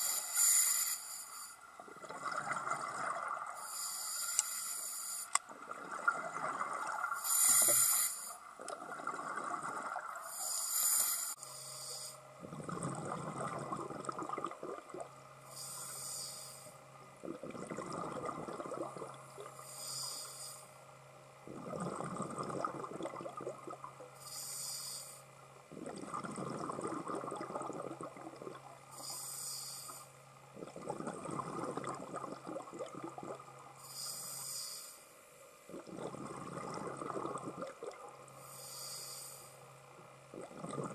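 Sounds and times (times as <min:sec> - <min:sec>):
regulator inhale hiss: 0:00.0 - 0:01.6, 0:03.6 - 0:05.4, 0:07.1 - 0:08.4, 0:10.2 - 0:12.3, 0:15.4 - 0:16.8, 0:19.5 - 0:20.8, 0:24.2 - 0:25.3, 0:28.9 - 0:30.2, 0:33.8 - 0:35.2, 0:38.4 - 0:39.7
exhaled air bubbling: 0:01.8 - 0:04.4, 0:05.3 - 0:11.8, 0:12.4 - 0:16.2, 0:17.2 - 0:20.2, 0:21.4 - 0:24.6, 0:25.7 - 0:34.5, 0:35.6 - 0:39.2, 0:40.2 - 0:40.9.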